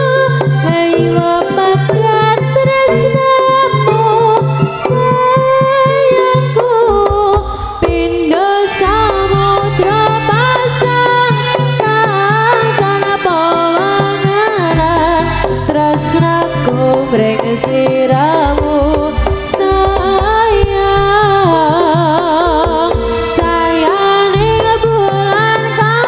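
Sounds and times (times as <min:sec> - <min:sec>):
hand drums: 0:00.0 - 0:26.0
ornamented lead melody: 0:00.0 - 0:26.0
deep low drum strokes: 0:06.8 - 0:11.9.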